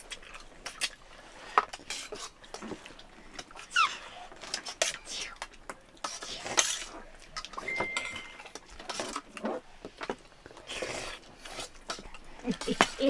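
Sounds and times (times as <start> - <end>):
soft chewing: 0.0 - 13.0
spoon clinking on metal plate: 7.7 - 8.5.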